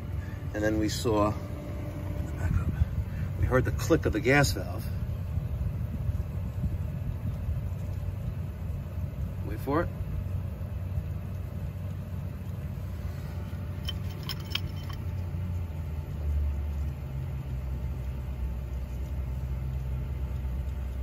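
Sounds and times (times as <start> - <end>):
pool heater humming: 0.0 - 21.0
light metallic clinks: 13.4 - 15.6.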